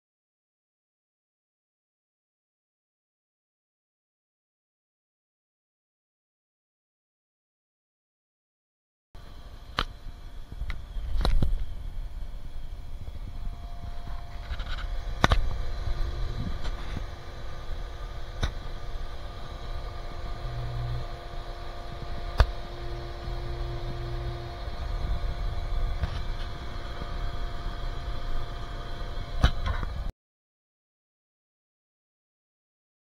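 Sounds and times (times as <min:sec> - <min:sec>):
pool pump humming: 0:09.2 - 0:30.1.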